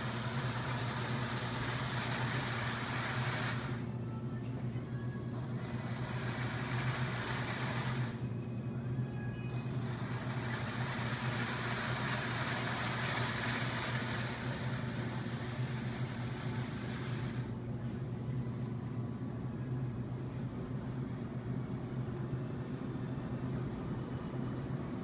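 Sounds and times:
model train running on track: 0.0 - 3.8, 5.5 - 8.2, 9.6 - 17.5
freezer hum and hiss: 0.0 - 25.0.

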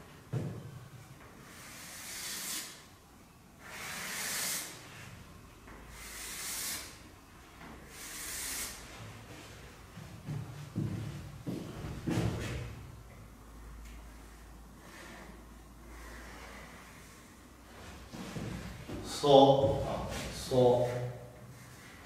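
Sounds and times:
chalk scraping on blackboard: 1.4 - 2.9, 3.6 - 4.9, 6.0 - 7.0, 7.9 - 8.9.

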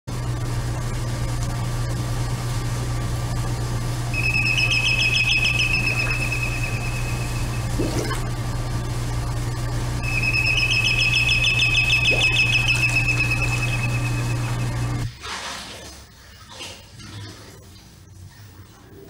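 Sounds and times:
bathtub pump humming: 0.1 - 18.9
high whistle-like tone: 4.2 - 7.8, 10.0 - 15.0
jets churning water: 7.7 - 8.4.

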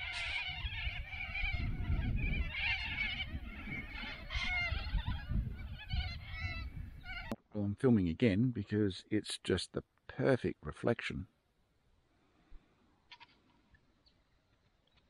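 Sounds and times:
cockatoos calling: 0.0 - 7.4.

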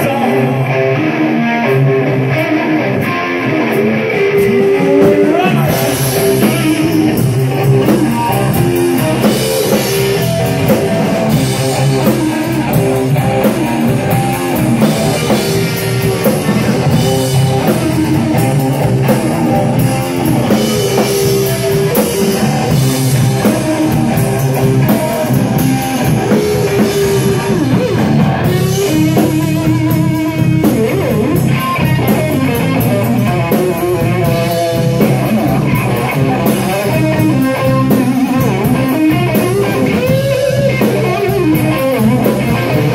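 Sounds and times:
drum kit: 0.0 - 42.9
electric guitar: 0.0 - 42.9.

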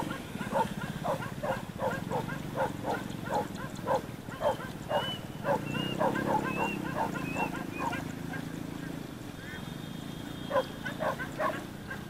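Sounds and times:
rapid repeated animal calls: 0.0 - 8.5.

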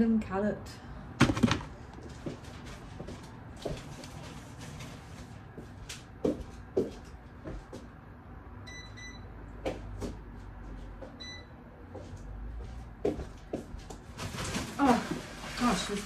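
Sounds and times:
knocks and clicks of objects moved: 1.2 - 5.2.

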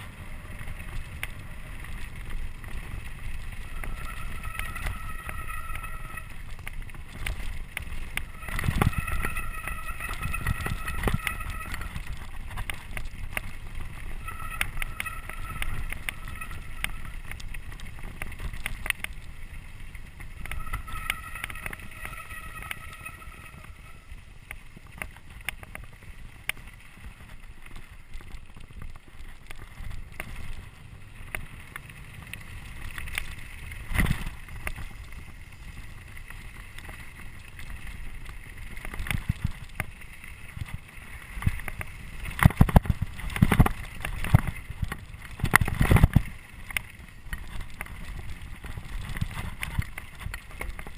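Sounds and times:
wind on microphone: 0.0 - 25.2
bike rattling: 0.0 - 50.9
bike tyres crunching on gravel: 0.0 - 50.9
brief high squeal: 3.7 - 6.4, 8.3 - 12.1, 14.2 - 17.4, 20.4 - 24.1.

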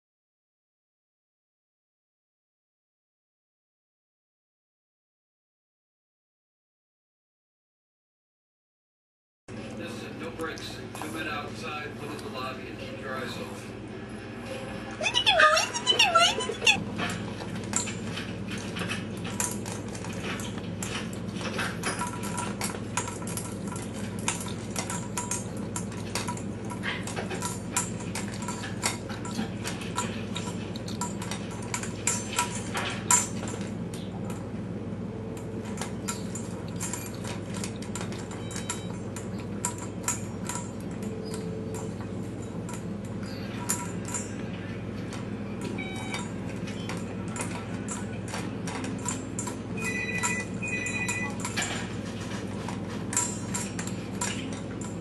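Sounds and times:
dry dog food rattling in bowl: 15.0 - 34.5, 35.5 - 44.5, 46.4 - 55.0.

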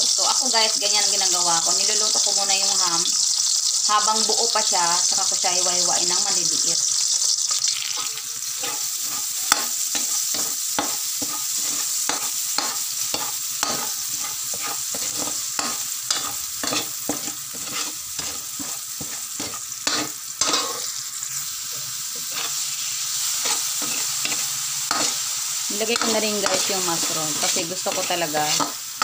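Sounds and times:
onion sizzling in hot oil: 0.0 - 29.0
metal spoon scraping a wok: 7.9 - 20.9, 22.1 - 29.0.

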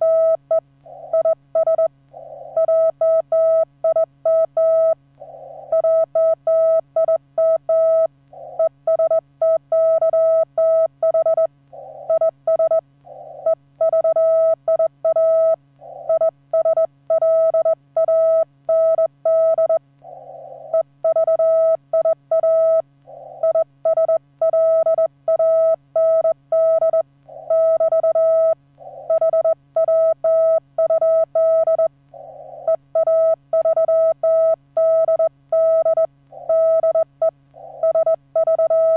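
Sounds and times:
faint steady hum: 0.0 - 38.9
morse code beeps: 5.7 - 12.8, 13.4 - 19.8, 20.7 - 22.8, 23.4 - 31.9, 32.6 - 38.9.

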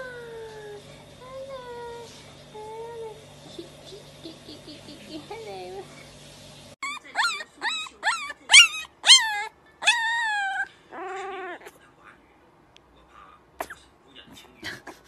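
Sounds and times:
puppy yelping and crying: 6.8 - 11.7.

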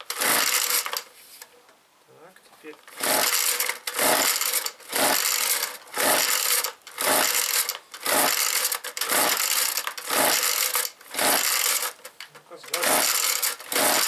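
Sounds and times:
engine recoil starter pulls: 2.9 - 14.0.

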